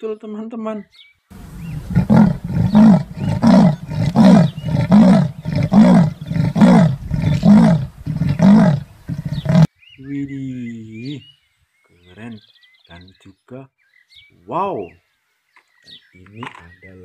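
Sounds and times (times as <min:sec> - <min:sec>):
leopard rough grunting call: 0:01.4 - 0:09.7.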